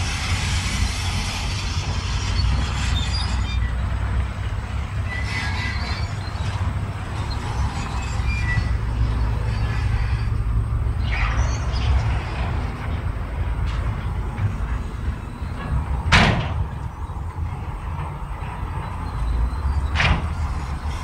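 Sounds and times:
heavy machinery diesel rumble: 0:00.0 - 0:21.0
metallic squeal: 0:00.5 - 0:21.0
loud metal clank: 0:13.6 - 0:19.0, 0:19.8 - 0:21.0.

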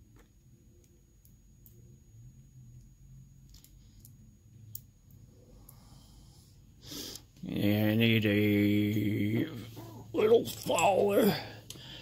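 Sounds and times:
faint small metal clicks: 0:03.4 - 0:05.8.

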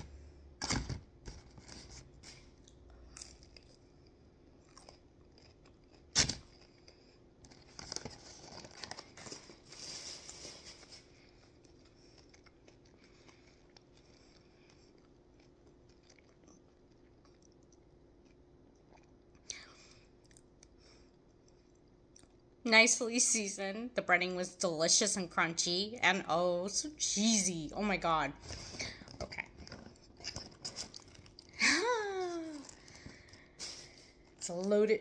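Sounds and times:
faint steady hum: 0:00.0 - 0:35.0
crunchy chewing: 0:01.6 - 0:09.2, 0:11.0 - 0:19.5.

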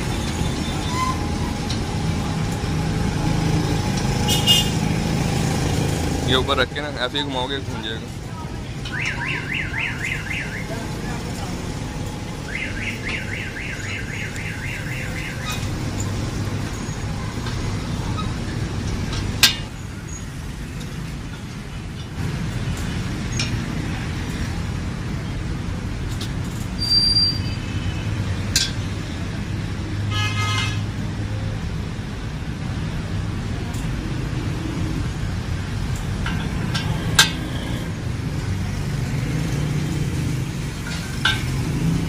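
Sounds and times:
street traffic: 0:00.0 - 0:42.0
car horn toot: 0:04.3 - 0:04.8, 0:30.1 - 0:30.8
car alarm warbling: 0:08.9 - 0:10.7, 0:12.4 - 0:15.7.

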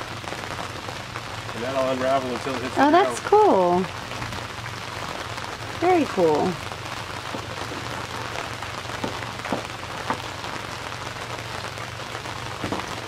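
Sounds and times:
steady rain on water: 0:00.0 - 0:13.0.

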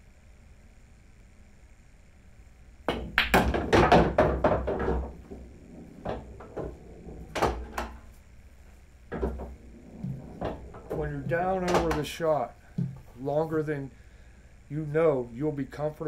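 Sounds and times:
ball rattling inside pool table: 0:02.9 - 0:08.2, 0:09.1 - 0:13.0
cue tip striking ball: 0:02.9 - 0:08.2, 0:09.1 - 0:12.1
pool balls clacking: 0:02.9 - 0:08.2, 0:09.1 - 0:13.1.

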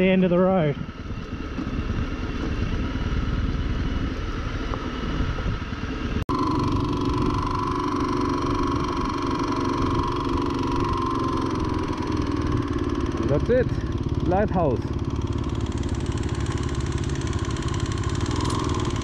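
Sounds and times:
wind noise: 0:00.0 - 0:06.2
motorcycle engine running: 0:00.0 - 0:19.0.

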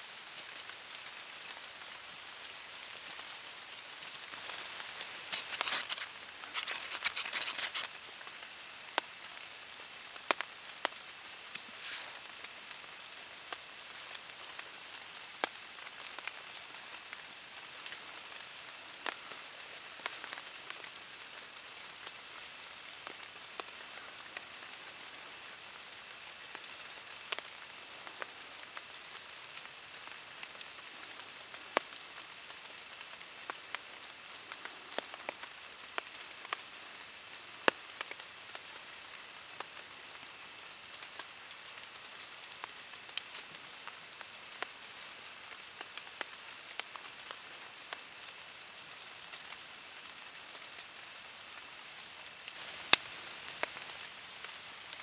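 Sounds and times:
steady rain: 0:00.0 - 0:55.0
knife scraping ferro rod: 0:05.3 - 0:07.9.

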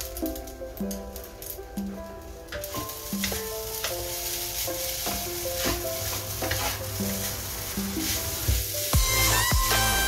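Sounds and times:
background music: 0:00.0 - 0:10.0
rice sizzling in a wok: 0:00.0 - 0:10.0
wooden spatula scraping wok: 0:02.6 - 0:09.4.

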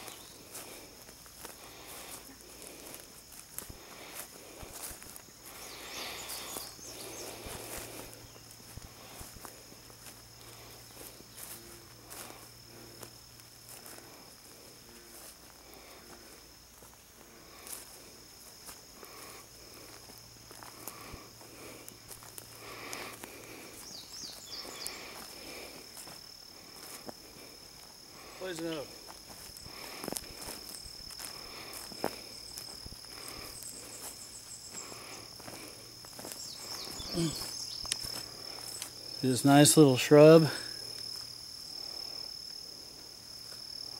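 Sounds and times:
footsteps on dry grass: 0:00.0 - 0:43.9
insects droning: 0:00.0 - 0:43.9
man murmuring: 0:37.1 - 0:37.5.

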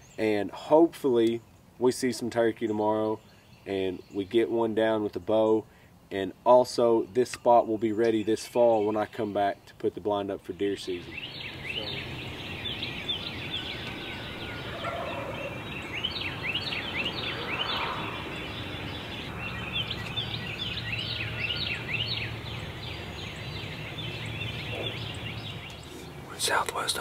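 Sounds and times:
songbirds chirping: 0:00.0 - 0:27.0
distant turkey gobbling: 0:11.2 - 0:19.3, 0:24.5 - 0:26.0.

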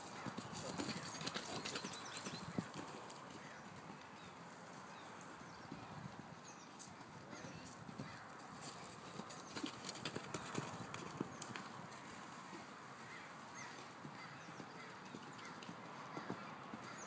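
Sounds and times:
hoofbeats on sand: 0:00.0 - 0:17.0.

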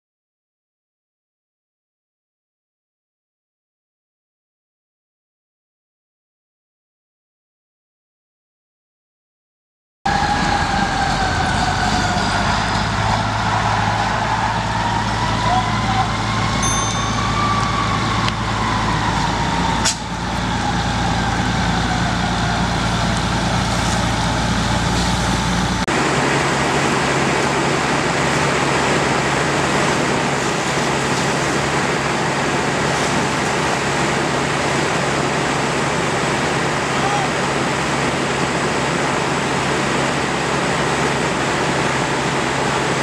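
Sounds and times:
fire engine running: 0:10.1 - 0:43.0
fire burning: 0:10.2 - 0:43.0.

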